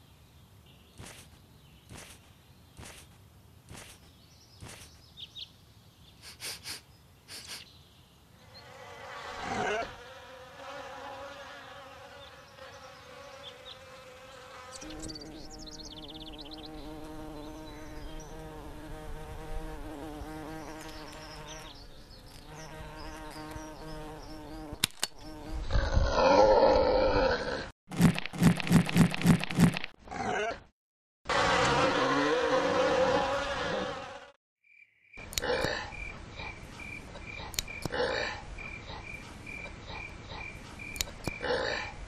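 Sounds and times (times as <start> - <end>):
bee buzzing: 8.4 - 25.8, 31.3 - 34.4.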